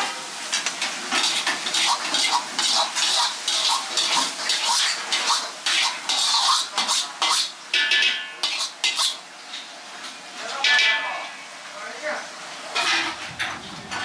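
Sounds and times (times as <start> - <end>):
metal ladle scraping a wok: 1.1 - 9.2.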